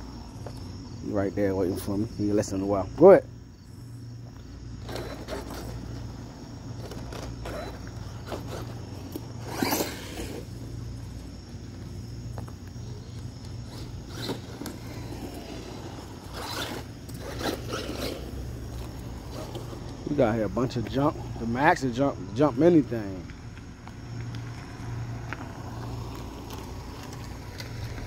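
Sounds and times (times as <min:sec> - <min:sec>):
steady low hum: 0:00.0 - 0:28.0
tyres scrabbling over pavement: 0:04.2 - 0:28.0
toy truck motor whir: 0:04.8 - 0:10.6, 0:13.1 - 0:19.9.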